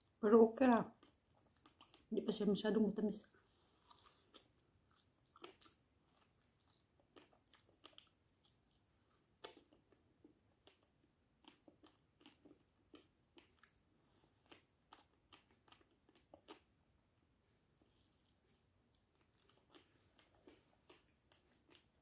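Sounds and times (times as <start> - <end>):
wet mouth chewing clicks: 1.0 - 2.1, 3.8 - 13.8, 14.4 - 16.7, 19.2 - 22.0.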